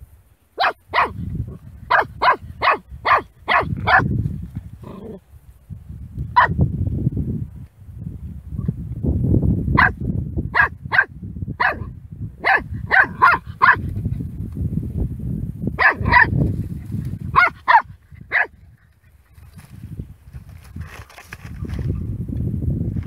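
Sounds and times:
puppy yapping: 0.6s - 1.2s, 1.9s - 4.1s, 10.6s - 13.8s, 17.3s - 18.6s.

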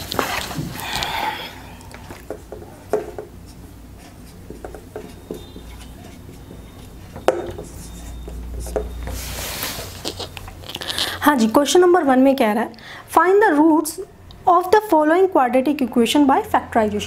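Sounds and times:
marker tapping: 2.1s - 8.9s
marker writing on whiteboard: 2.1s - 9.1s.

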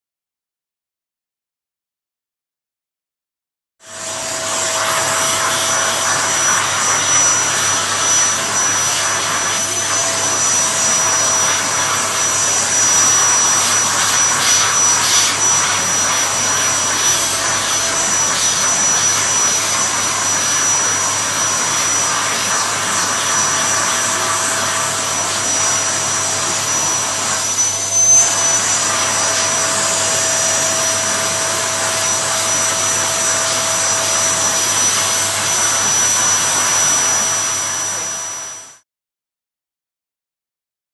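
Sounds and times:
vacuum cleaner running: 3.8s - 38.8s.

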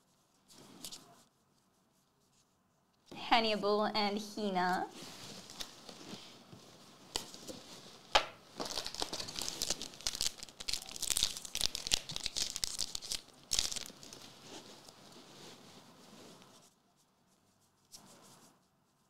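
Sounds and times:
foil wrapper tearing and crinkling: 8.6s - 14.4s.

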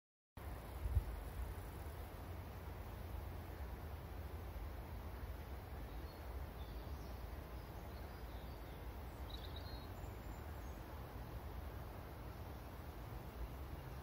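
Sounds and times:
low rumble and hiss: 0.4s - 14.0s
faint bird chirps: 5.8s - 11.0s.

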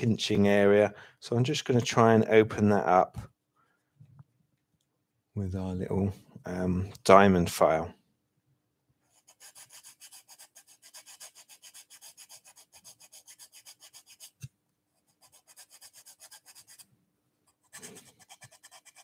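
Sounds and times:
file rasping in wood: 9.2s - 14.5s, 15.1s - 16.8s, 17.6s - 19.0s.

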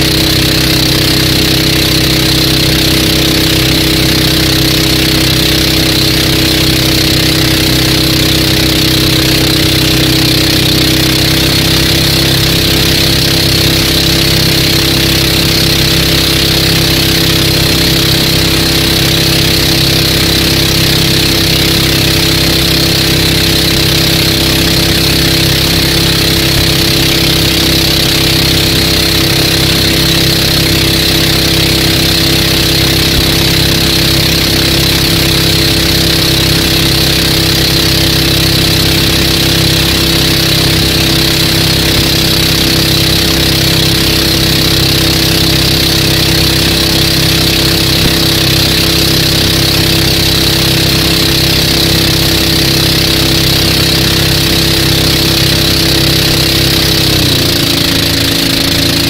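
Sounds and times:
boat engine running: 0.0s - 59.0s.

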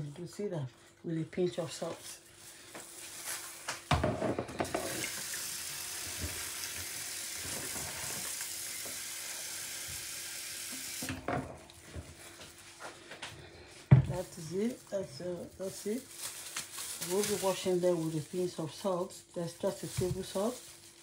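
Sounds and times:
tap running into a bowl: 3.9s - 5.4s
knocks and handling noises: 11.1s - 14.5s.

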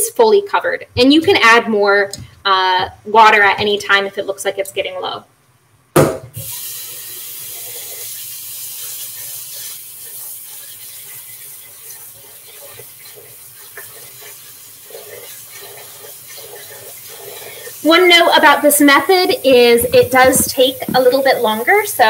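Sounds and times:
tap water filling pot: 6.0s - 21.7s.

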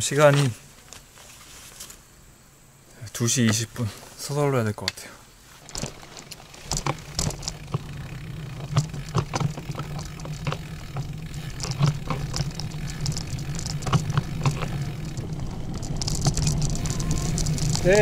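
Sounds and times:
steady low hum: 5.2s - 18.0s
bicycle rattling and clicking: 5.6s - 18.0s.

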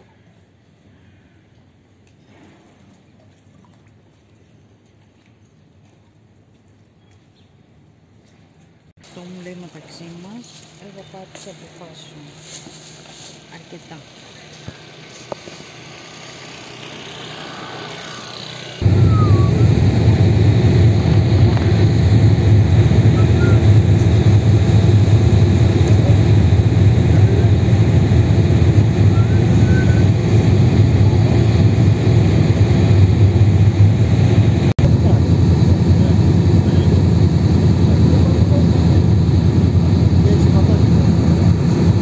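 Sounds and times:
boat engines rumbling: 13.0s - 42.0s
rising hum: 15.1s - 42.0s.

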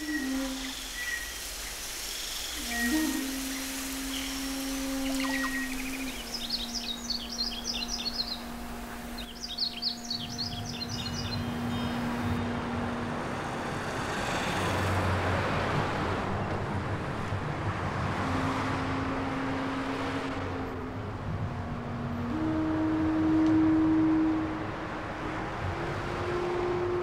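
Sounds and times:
small birds twittering: 0.0s - 12.4s.

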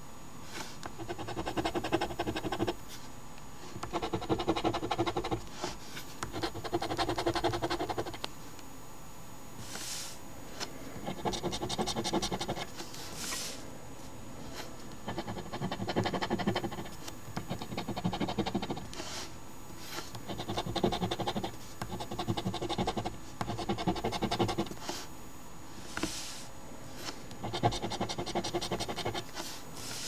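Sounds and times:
coin scratching a lottery ticket: 1.0s - 2.8s, 3.8s - 5.4s, 6.3s - 8.2s, 11.0s - 12.7s, 15.0s - 18.8s, 20.3s - 24.8s, 27.0s - 30.0s.

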